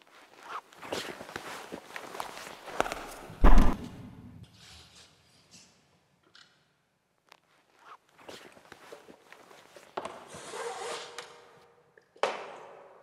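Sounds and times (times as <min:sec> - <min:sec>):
rope and cloth rustling: 0:00.0 - 0:03.8, 0:07.2 - 0:11.0.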